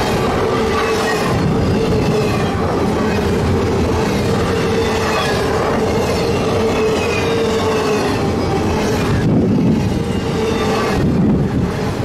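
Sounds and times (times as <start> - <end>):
train wheels on rail: 0.0 - 12.0
faint high wheel squeals: 4.4 - 11.0.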